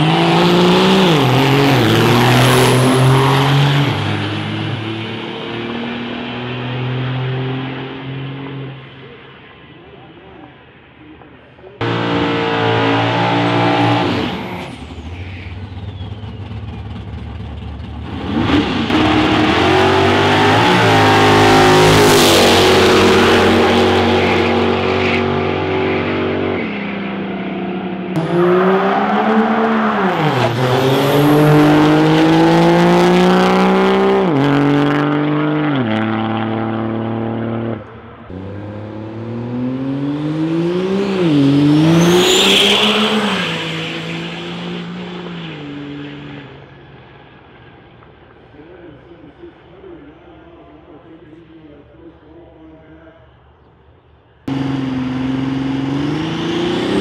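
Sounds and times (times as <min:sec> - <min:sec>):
diesel truck engines racing: 0:00.0 - 0:52.2, 0:54.4 - 0:57.0
high whistle: 0:42.0 - 0:43.1.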